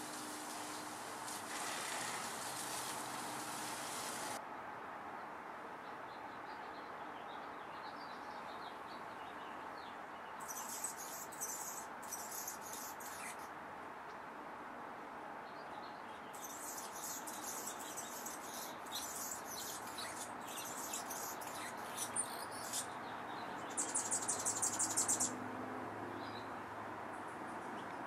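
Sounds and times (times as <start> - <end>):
hummingbird chips and twitters: 10.5 - 13.4, 16.4 - 22.9, 23.6 - 25.3.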